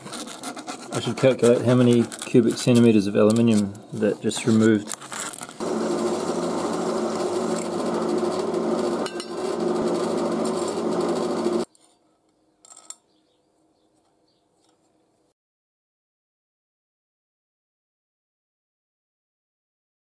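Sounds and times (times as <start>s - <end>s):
electric motor buzzing hum: 5.6s - 11.7s.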